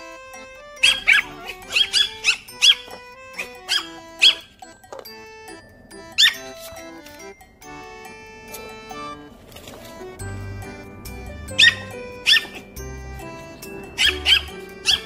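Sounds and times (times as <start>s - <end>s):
background music: 0.0s - 15.0s
puppy yapping: 0.8s - 4.5s, 6.2s - 6.5s, 11.5s - 12.8s, 14.0s - 15.0s.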